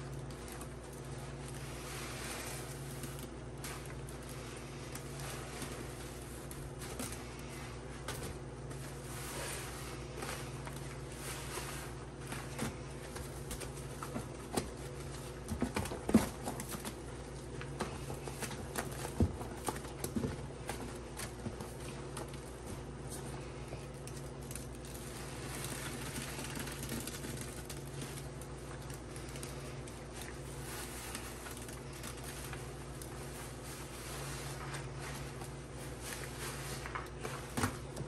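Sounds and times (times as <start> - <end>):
sponges squelching in foamy paste: 0.0 - 16.1.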